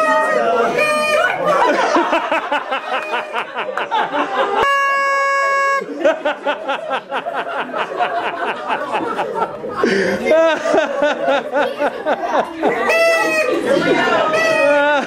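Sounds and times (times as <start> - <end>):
people laughing: 0.3 - 4.7, 5.5 - 15.0
group clapping: 1.2 - 1.7, 2.4 - 4.6
steady horn-like tone: 4.6 - 6.0.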